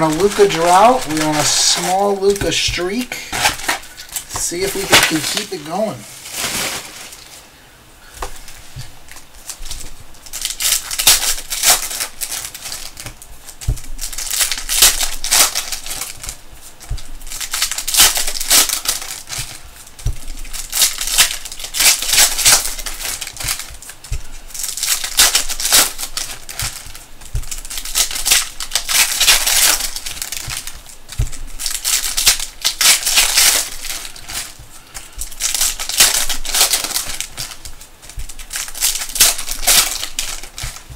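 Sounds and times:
foil wrappers crinkling: 0.0 - 40.9.

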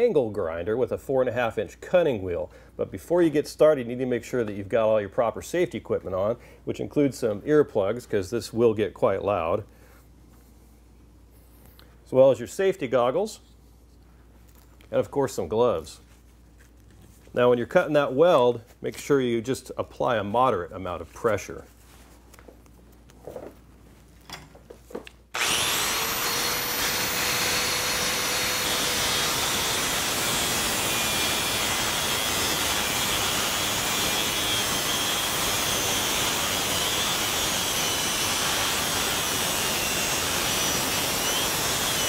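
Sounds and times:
angle grinder cutting metal: 25.4 - 42.0.

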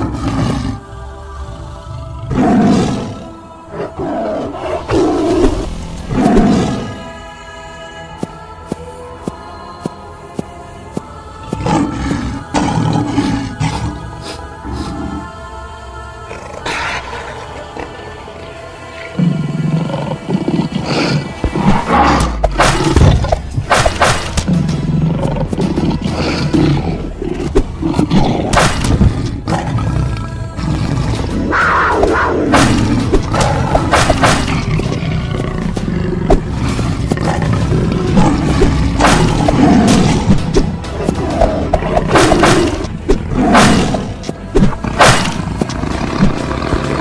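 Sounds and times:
big cat roars: 0.0 - 0.8, 1.4 - 7.0, 11.6 - 15.2, 19.0 - 23.4, 24.3 - 47.0
background music: 0.0 - 47.0.

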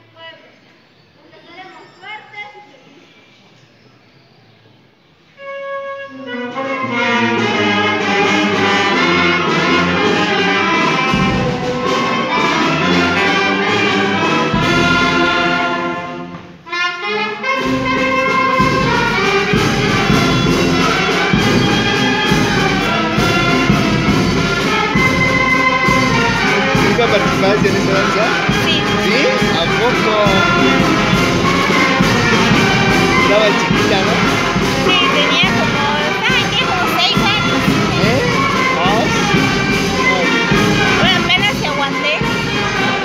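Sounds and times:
brass band playing: 5.4 - 43.0
bass drum beating: 18.4 - 43.0.

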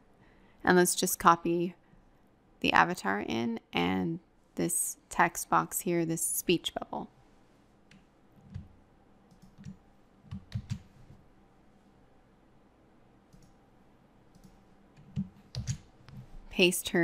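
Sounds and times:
computer mouse clicking: 9.3 - 10.9, 13.3 - 13.6, 14.3 - 16.2.

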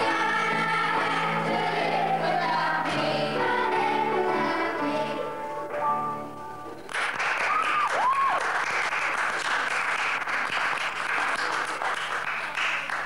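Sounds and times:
audience applause: 6.9 - 13.0.

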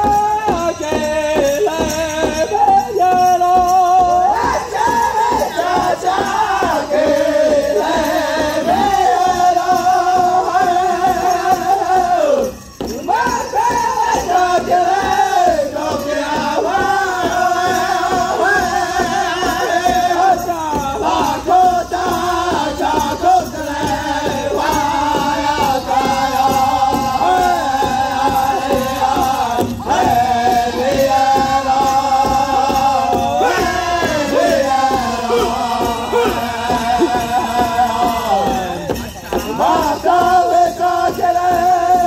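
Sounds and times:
men and women singing together: 0.0 - 42.0
large drum beating: 12.0 - 42.0.

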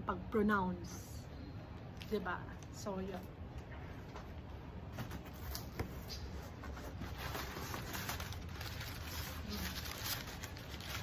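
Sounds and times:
packing paper rustling: 5.0 - 11.0.

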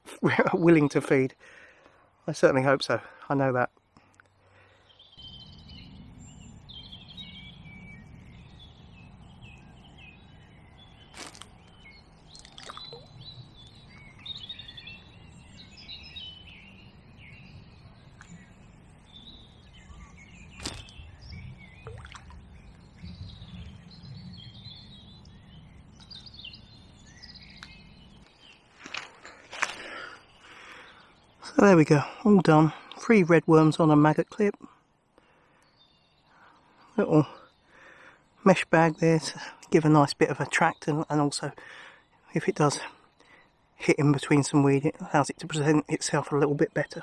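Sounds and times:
birds singing and chirping: 0.0 - 47.0
fishing tackle clicks: 12.4 - 13.0.

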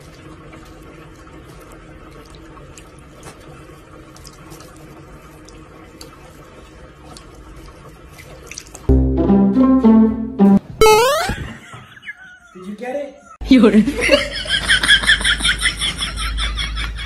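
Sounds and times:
water drips and splashes: 7.1 - 8.9.

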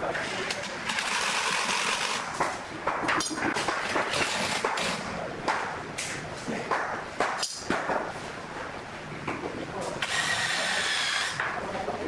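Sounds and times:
cordless drill running: 10.0 - 11.4.

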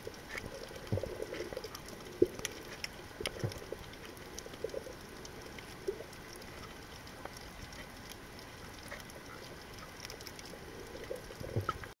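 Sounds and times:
faint clicks and crackles: 0.0 - 12.0.

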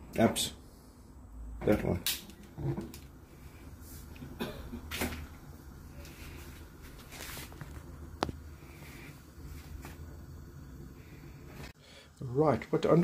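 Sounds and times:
soft handling noises: 6.0 - 10.1.

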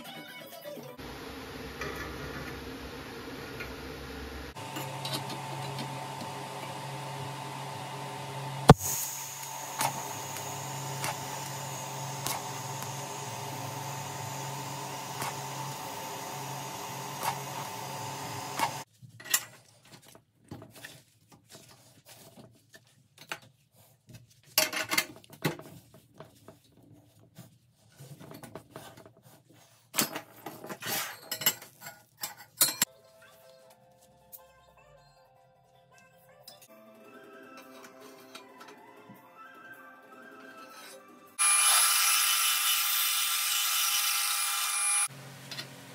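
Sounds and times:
welding arc buzzing hiss: 7.8 - 18.9.

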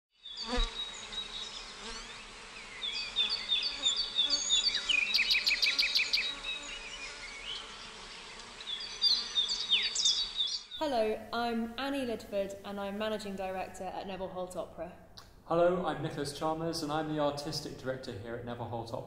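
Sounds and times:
high insect buzz: 0.2 - 10.8
small birds chirping: 0.2 - 11.2.

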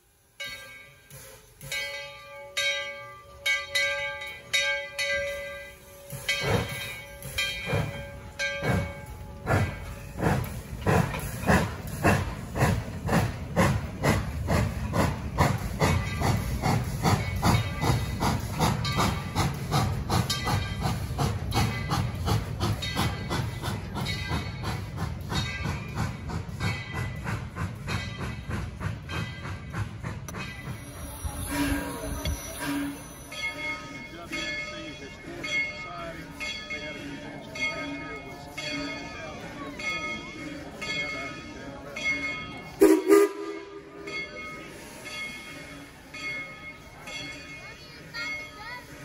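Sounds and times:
steam hissing: 0.0 - 2.2, 5.1 - 34.6, 42.6 - 49.0
locomotive bell ringing: 0.3 - 49.0
steam exhaust chuffs: 5.7 - 34.6.

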